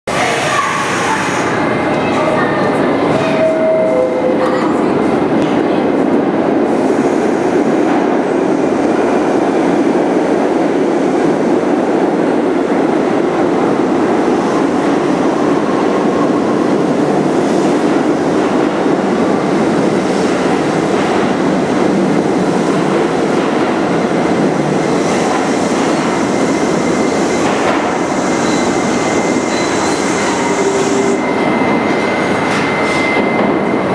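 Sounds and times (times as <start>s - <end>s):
subway train wheels rumbling: 0.1s - 33.9s
high wheel squeal: 28.0s - 33.8s.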